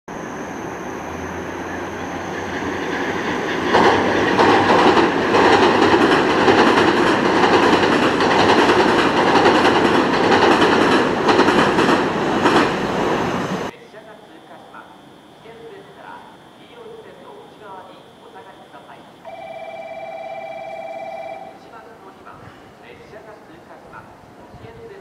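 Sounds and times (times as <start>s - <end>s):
train wheels rumbling on bridge: 1.8s - 13.7s
rail joint clacks: 2.1s - 12.9s.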